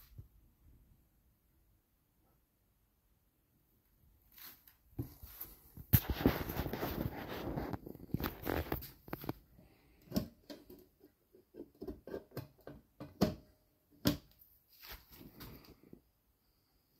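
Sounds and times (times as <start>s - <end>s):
rustling handling noise: 4.3s - 9.6s.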